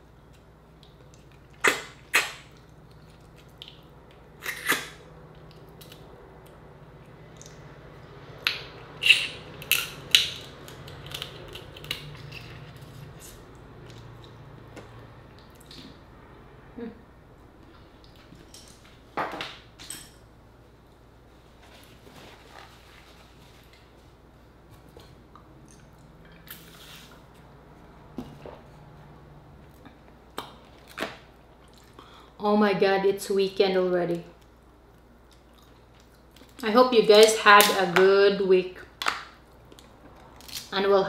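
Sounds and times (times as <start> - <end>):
wet sucking smacks: 0.8 - 5.6.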